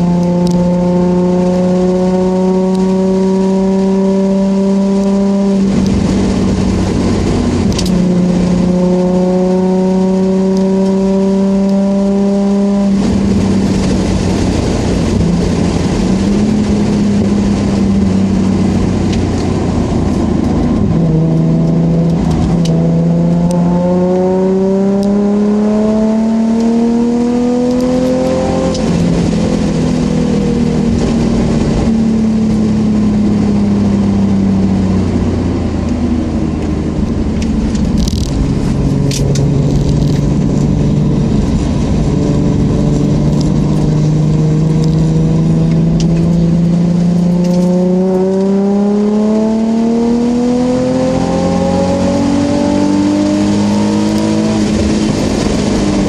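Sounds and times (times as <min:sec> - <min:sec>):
car engine from inside cabin: 0:00.0 - 0:56.0
tyre and road noise: 0:00.0 - 0:56.0.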